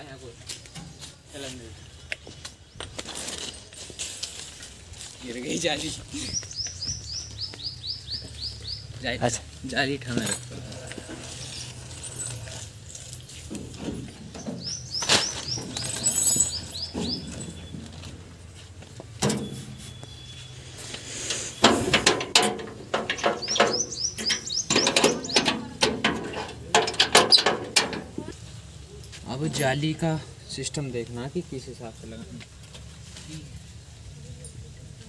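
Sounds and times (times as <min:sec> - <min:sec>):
small birds chirping: 0:00.0 - 0:12.3, 0:13.2 - 0:26.0
hand tools knocking on metal: 0:15.5 - 0:18.0, 0:21.6 - 0:28.3.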